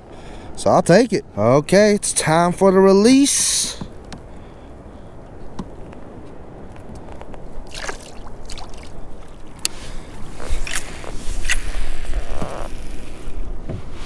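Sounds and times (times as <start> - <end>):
small splashes: 7.6 - 9.4
water sloshing around kayak hull: 7.6 - 13.2.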